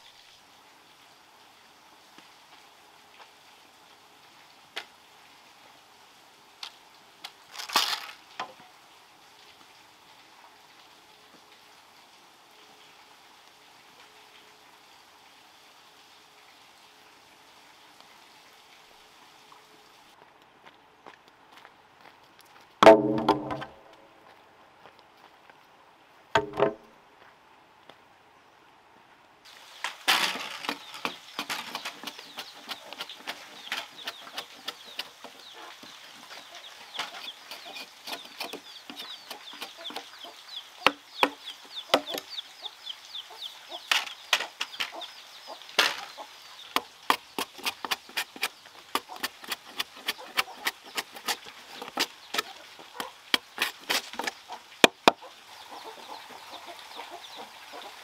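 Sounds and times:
machete chopping wood: 22.8s - 23.7s, 26.4s - 26.8s
chickens clucking: 30.4s - 58.0s.

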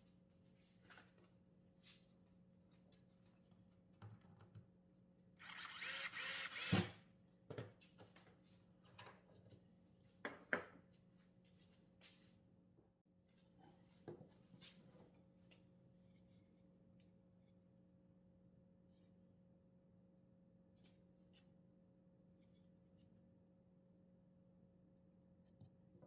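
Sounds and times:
cordless drill running: 5.4s - 7.0s.

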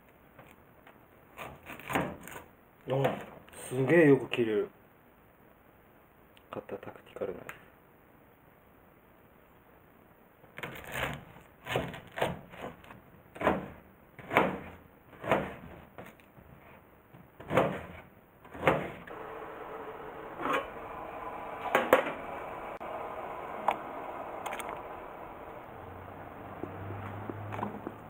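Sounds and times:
knife chopping onion on board: 13.4s - 15.8s
gas burner hissing: 19.1s - 28.0s.

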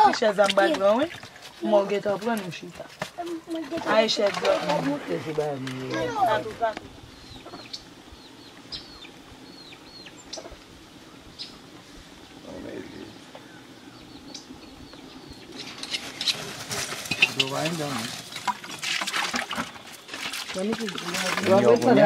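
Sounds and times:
metal pots clattering and scraping: 0.0s - 6.6s, 15.5s - 22.0s
voices talking: 0.0s - 18.5s, 20.4s - 22.0s
bird chirps: 7.0s - 11.6s, 13.3s - 16.4s.

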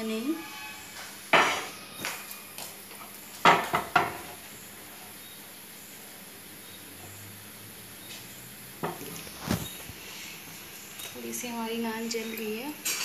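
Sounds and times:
gas burner hissing: 0.0s - 13.0s.

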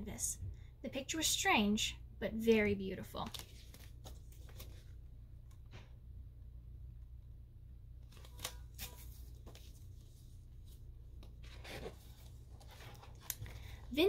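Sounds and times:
steady low hum: 0.0s - 14.0s
paper page turning: 3.2s - 4.9s, 8.0s - 13.8s.

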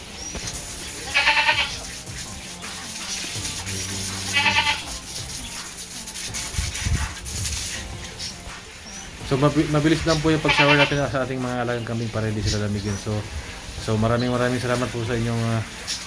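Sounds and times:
garden hose water hissing: 0.0s - 16.0s
goat bleating: 1.0s - 1.9s, 4.0s - 5.0s, 10.3s - 11.1s.

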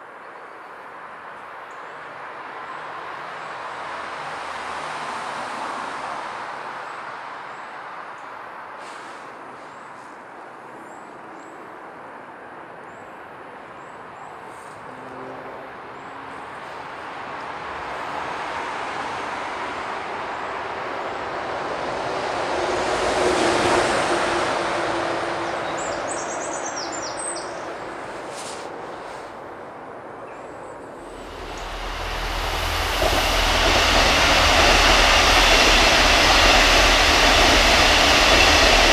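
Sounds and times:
vehicle passing by: 31.0s - 38.6s.

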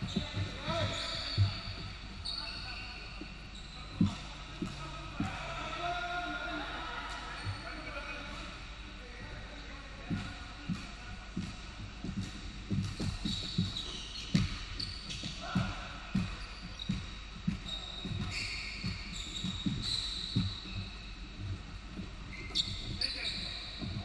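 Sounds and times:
basketball dribbling on hardwood: 0.0s - 2.6s, 10.0s - 24.0s
sneakers squeaking: 0.0s - 24.0s.

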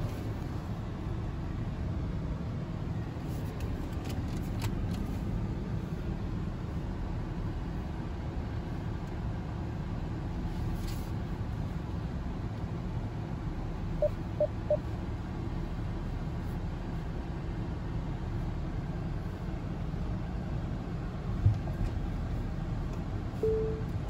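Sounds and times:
quick beeps: 14.0s - 14.8s, 23.4s - 23.9s
short single tone: 23.4s - 24.0s.

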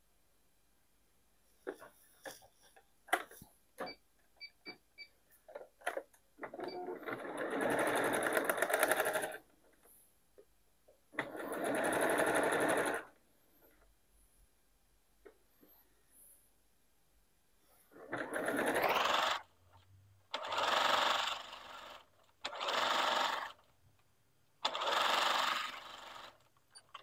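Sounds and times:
sewing machine stitching: 6.4s - 9.4s, 11.2s - 13.1s, 17.9s - 19.6s, 20.3s - 23.6s, 24.6s - 27.0s.

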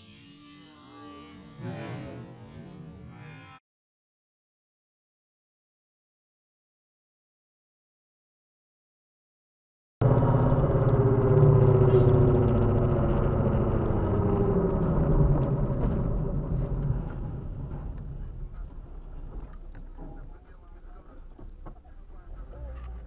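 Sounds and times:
car engine and road noise: 10.0s - 23.0s.

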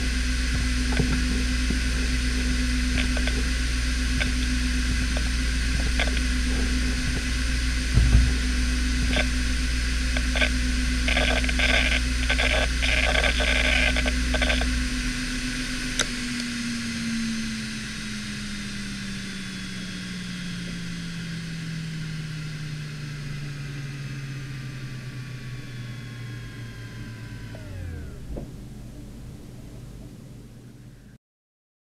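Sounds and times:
hard drive spindle whine: 0.0s - 31.2s
hard drive spinning down: 0.0s - 31.2s
dull thump: 7.9s - 8.4s.

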